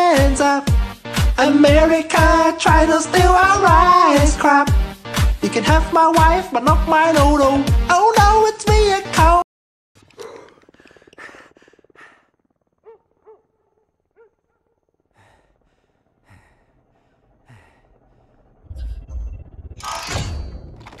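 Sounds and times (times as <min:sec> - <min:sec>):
low rumble: 0:01.6 - 0:04.8, 0:11.6 - 0:21.0
man breathing and sighing: 0:10.0 - 0:12.7, 0:15.0 - 0:19.2.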